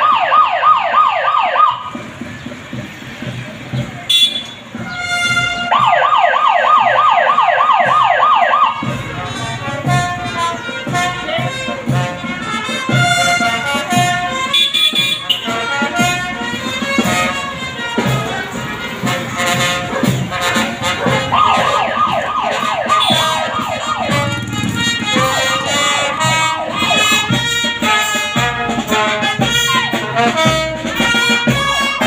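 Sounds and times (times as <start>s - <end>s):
siren yelping: 0.0s - 2.0s, 5.0s - 9.0s, 19.7s - 27.5s
brass band playing: 1.6s - 32.0s.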